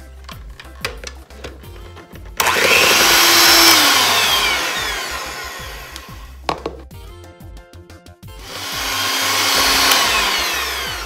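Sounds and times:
electric hand mixer whirring: 2.4 - 6.4, 8.4 - 11.0.

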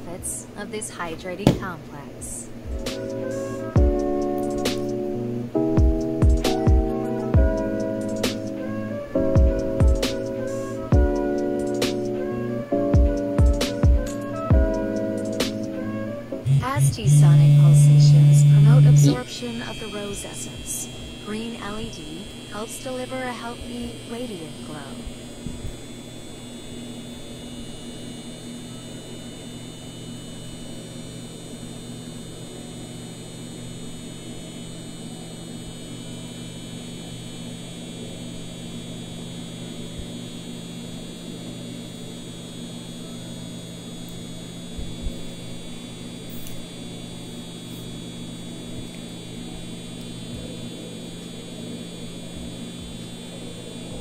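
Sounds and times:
facial device buzzing hum: 0.0 - 54.0
brief knock: 1.4 - 1.7.

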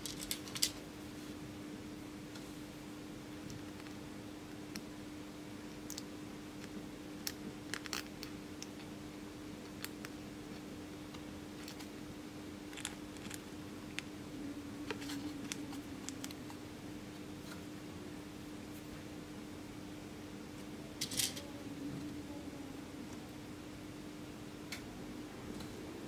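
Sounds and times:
clicks and scratches of wire leads: 0.0 - 0.8
faint hum: 0.0 - 26.0.

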